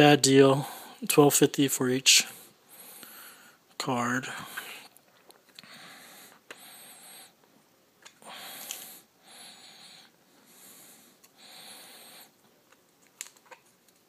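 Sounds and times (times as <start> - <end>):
person breathing through nose: 2.7 - 3.6, 5.6 - 7.4, 8.2 - 12.4.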